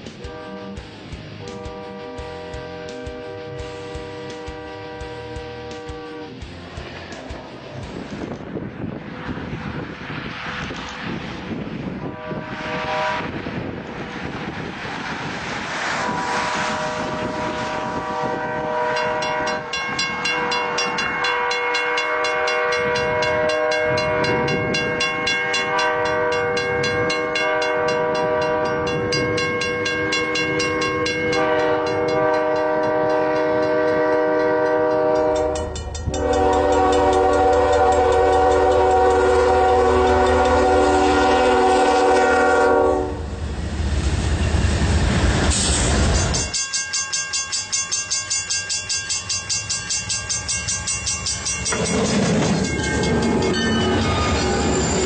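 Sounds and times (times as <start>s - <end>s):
deep rumble of train passing: 0.0s - 46.6s, 48.6s - 55.0s
locomotive air horn blasts: 0.2s - 0.8s, 1.4s - 6.4s, 12.0s - 13.4s, 16.0s - 43.3s.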